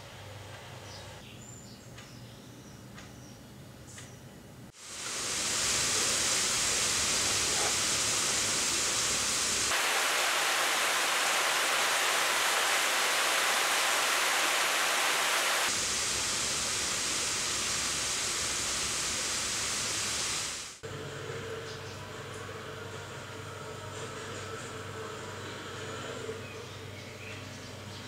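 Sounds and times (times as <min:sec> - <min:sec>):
heavy rain pouring: 0:04.8 - 0:20.8.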